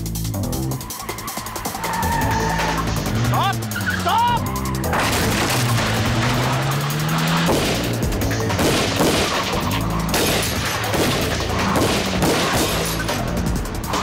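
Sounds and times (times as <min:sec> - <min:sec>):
tense orchestral music: 0:00.0 - 0:14.0
gunshots: 0:04.9 - 0:13.2.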